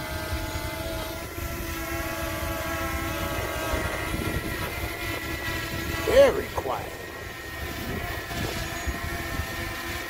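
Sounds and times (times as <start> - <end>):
drone propellers whirring: 0.0 - 10.0
low wind rumble: 0.0 - 10.0.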